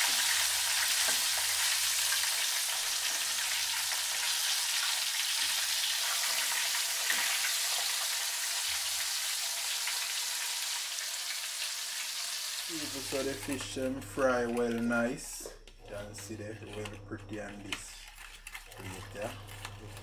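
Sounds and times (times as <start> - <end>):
fish sizzling in hot oil: 0.0 - 13.9.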